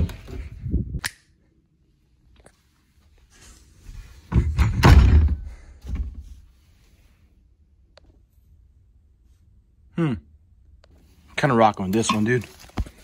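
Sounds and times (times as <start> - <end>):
knocks and thuds of hangers: 4.3 - 6.3.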